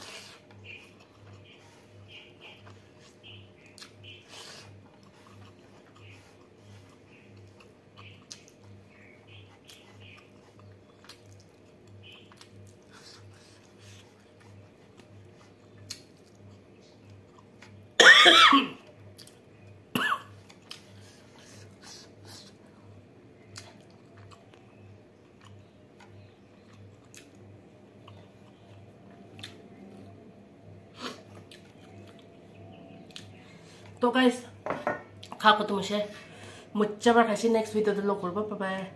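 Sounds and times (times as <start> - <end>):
soft chewing: 0.0 - 18.0, 18.8 - 34.0
person coughing: 18.0 - 18.8, 19.9 - 20.3.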